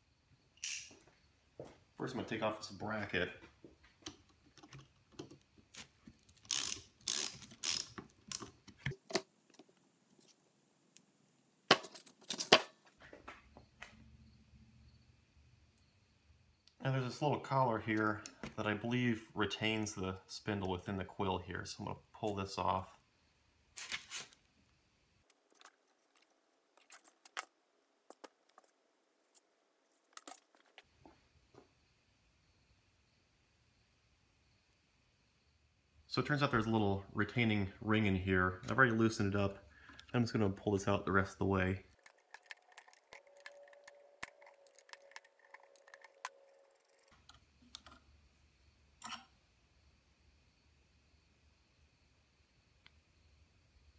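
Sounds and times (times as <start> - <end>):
small metal clicks and scrapes: 41.9 - 48.0, 49.0 - 49.3.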